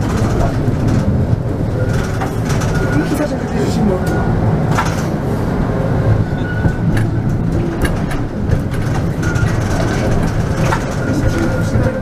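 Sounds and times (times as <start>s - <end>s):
tram wheels rumbling on rail: 0.0s - 12.0s.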